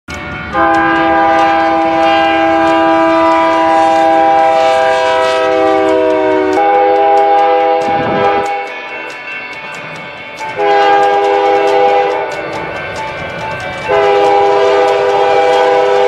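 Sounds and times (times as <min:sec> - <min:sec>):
locomotive air horn chord: 0:00.5 - 0:08.7, 0:10.6 - 0:12.4, 0:13.9 - 0:16.0
second train horn chord: 0:00.5 - 0:08.7, 0:10.6 - 0:12.4, 0:13.9 - 0:16.0.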